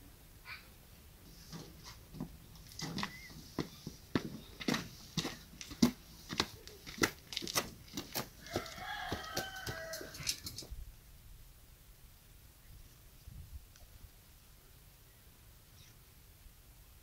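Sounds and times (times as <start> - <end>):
footsteps on hard dirt: 1.5 - 10.7
rooster crowing: 8.4 - 10.6.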